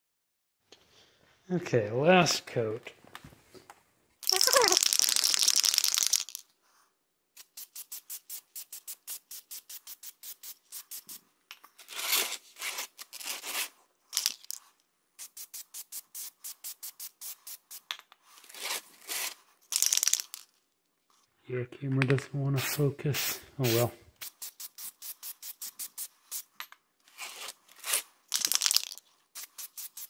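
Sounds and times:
aerosol can mixing ball rattling: 0:04.2 - 0:06.5, 0:14.1 - 0:14.6, 0:19.6 - 0:20.5, 0:27.8 - 0:30.0
spray hiss: 0:07.4 - 0:11.2.

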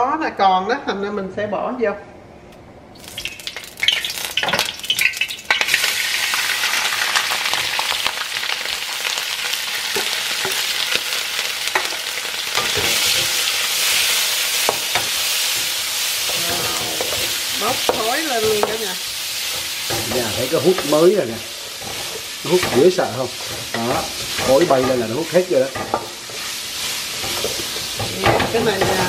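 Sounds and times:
shrimp sizzling in hot oil: 0:03.0 - 0:29.0
spatula scraping and tapping pan: 0:19.5 - 0:26.6, 0:27.2 - 0:29.0.

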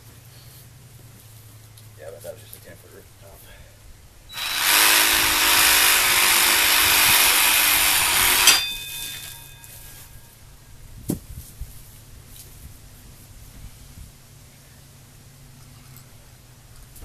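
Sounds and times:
metallic clank: 0:08.1 - 0:10.3.

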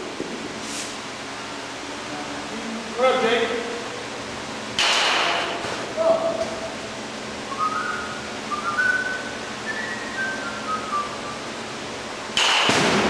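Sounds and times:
person whistling a tune: 0:07.5 - 0:11.4.

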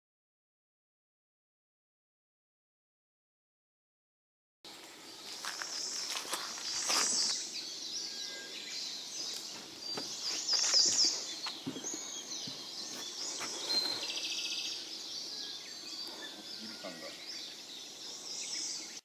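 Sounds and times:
songbirds singing: 0:04.7 - 0:19.0.

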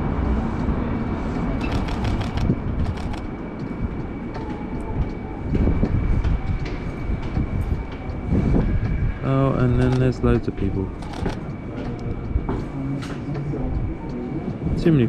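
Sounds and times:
steady low rumble: 0:00.0 - 0:15.0
camera shutter clicks: 0:01.6 - 0:03.2, 0:11.0 - 0:11.4.

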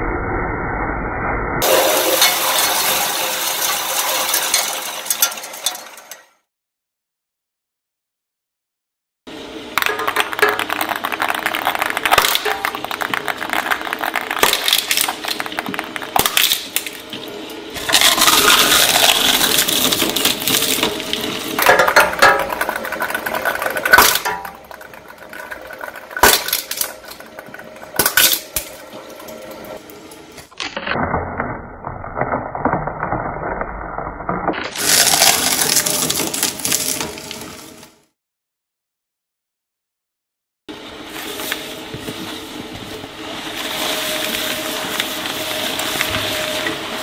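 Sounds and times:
shredder blades crushing balls: 0:01.6 - 0:06.2, 0:09.7 - 0:37.9, 0:43.5 - 0:47.0
balls clattering in a shredder: 0:01.6 - 0:06.4, 0:09.6 - 0:37.9, 0:43.5 - 0:47.0.

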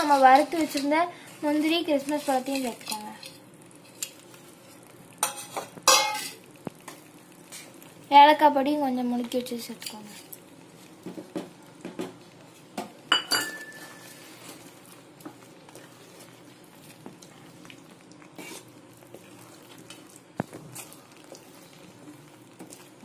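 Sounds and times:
wooden spatula scraping a pan: 0:00.0 - 0:06.3, 0:13.6 - 0:17.6, 0:18.3 - 0:23.0.

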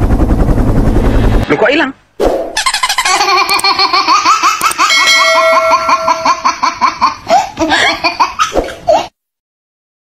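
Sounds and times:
cartoon baby giggling: 0:02.6 - 0:09.1
held chime-like tone: 0:04.9 - 0:06.4.

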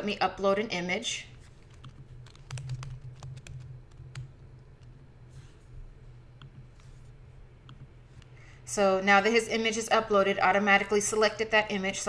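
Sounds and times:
computer keyboard typing: 0:01.5 - 0:05.0.

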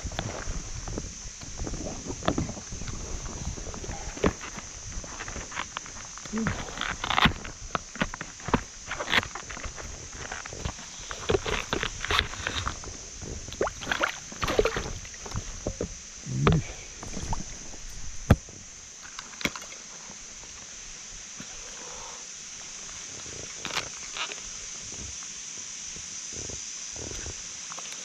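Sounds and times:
water splashing and sloshing: 0:00.0 - 0:20.8.

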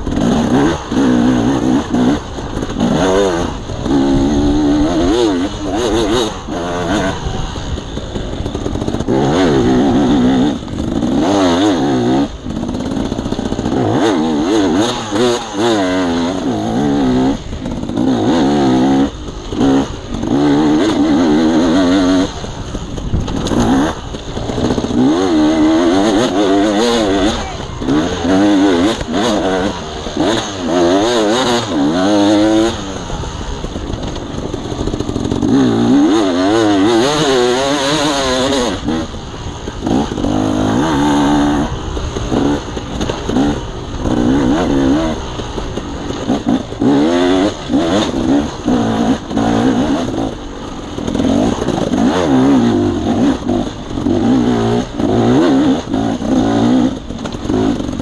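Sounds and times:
dirt bike engine revving: 0:00.0 - 0:58.0
knocks and clatter: 0:17.4 - 0:58.0.

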